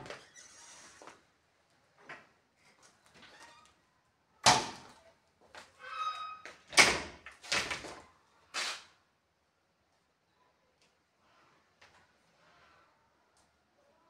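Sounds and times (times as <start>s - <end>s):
door squeak: 0.0s - 1.0s, 5.8s - 7.0s.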